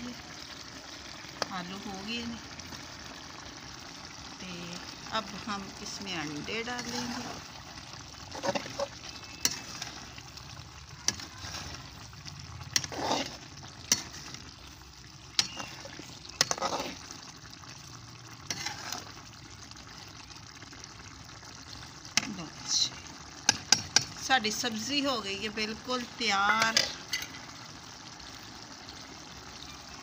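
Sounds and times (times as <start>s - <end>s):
metal ladle scraping pan: 5.4s - 17.2s, 18.4s - 19.3s, 26.4s - 27.5s.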